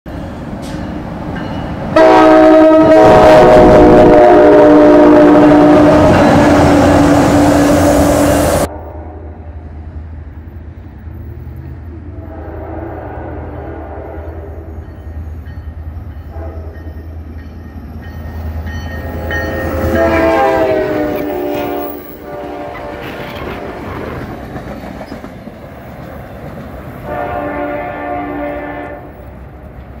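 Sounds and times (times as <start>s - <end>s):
diesel locomotive engine: 0.1s - 30.0s
train horn: 2.0s - 9.6s, 12.0s - 14.9s, 16.2s - 17.1s, 19.0s - 23.8s, 27.0s - 29.3s.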